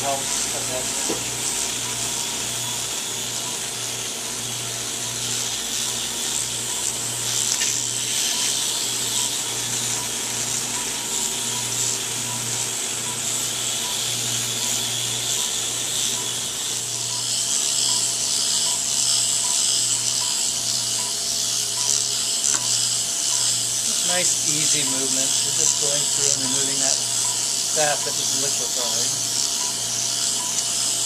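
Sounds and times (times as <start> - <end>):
suction hissing: 0.0 - 2.6, 5.2 - 12.0, 21.8 - 31.0
motorized handpiece humming: 0.0 - 31.0.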